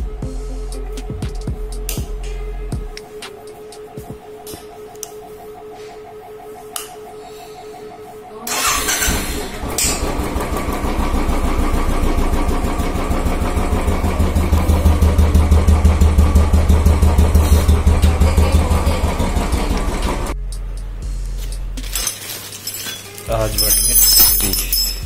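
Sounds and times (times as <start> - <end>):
motorcycle engine starting and idling: 8.5 - 20.4.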